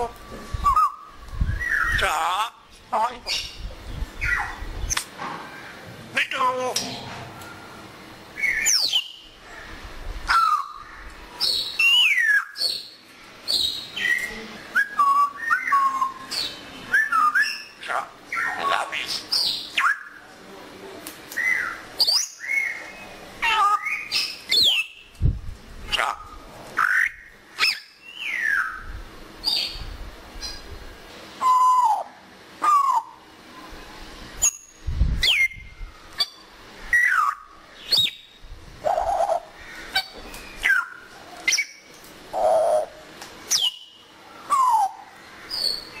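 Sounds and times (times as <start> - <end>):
parrot whistles and calls: 0.0 - 2.0, 11.4 - 12.9, 13.6 - 18.8, 19.7 - 20.2, 26.8 - 29.7, 31.4 - 33.2, 34.4 - 35.6, 36.2 - 38.3, 40.0 - 41.8.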